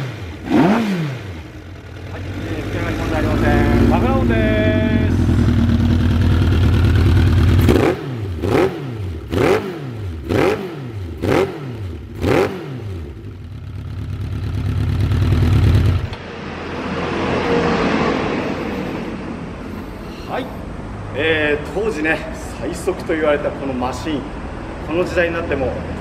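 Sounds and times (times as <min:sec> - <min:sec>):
motorcycle engine revving: 0:00.0 - 0:19.0.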